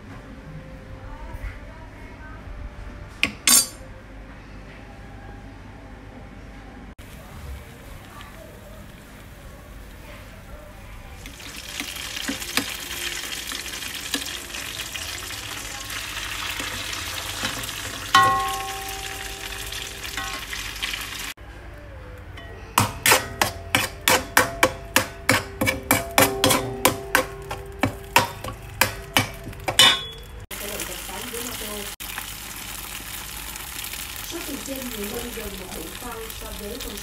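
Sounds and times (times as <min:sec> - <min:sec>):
metal clank: 0:03.2 - 0:03.8, 0:17.4 - 0:19.4, 0:22.4 - 0:30.4
metal spatula clinking on pan: 0:03.2 - 0:03.8, 0:18.1 - 0:19.6, 0:20.2 - 0:20.5, 0:22.4 - 0:30.4
food sizzling in oil: 0:11.2 - 0:21.4, 0:22.9 - 0:37.0.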